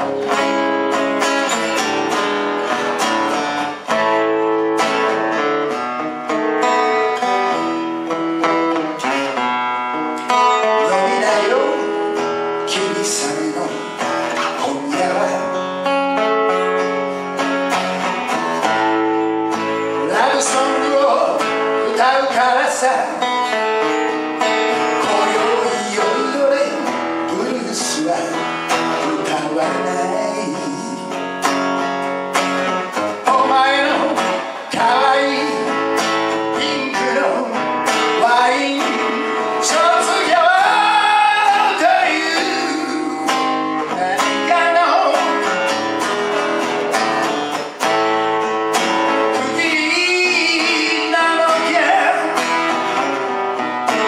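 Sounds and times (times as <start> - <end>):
strummed acoustic guitar: 0.0 - 54.0
man singing: 10.2 - 16.6, 19.5 - 31.4, 32.9 - 46.4, 48.8 - 53.1.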